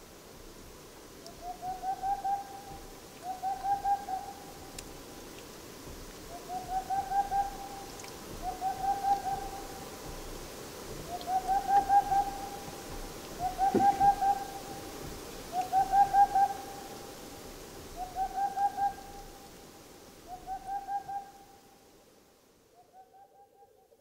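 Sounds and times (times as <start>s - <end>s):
owl hooting: 1.3s - 4.6s, 6.3s - 9.8s, 11.1s - 14.8s, 15.5s - 17.0s, 18.0s - 19.3s, 20.2s - 21.6s.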